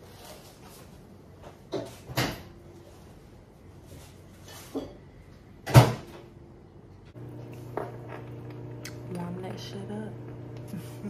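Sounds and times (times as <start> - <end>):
microwave oven humming: 6.2 - 11.0.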